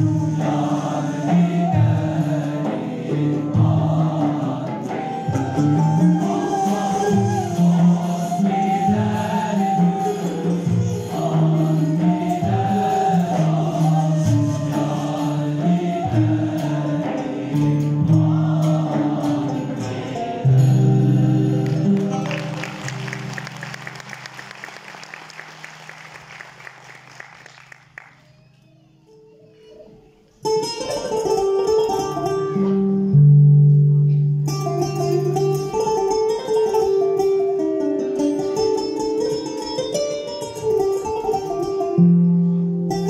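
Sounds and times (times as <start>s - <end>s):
male choir singing: 0.0s - 22.8s
ensemble of flute and plucked strings: 0.0s - 24.3s, 29.2s - 43.0s.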